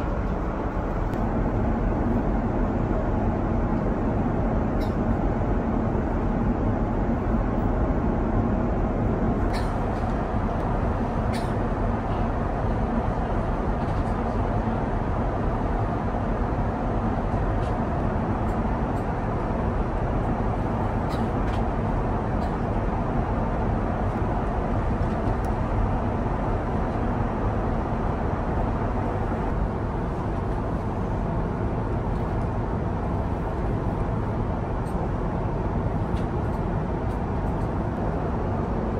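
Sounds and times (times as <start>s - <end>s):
airliner cabin noise: 0.0s - 38.9s.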